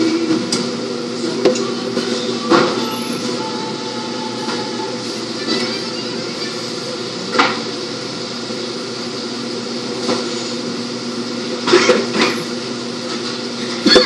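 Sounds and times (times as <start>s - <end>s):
kitchen machinery humming: 0.0s - 14.0s.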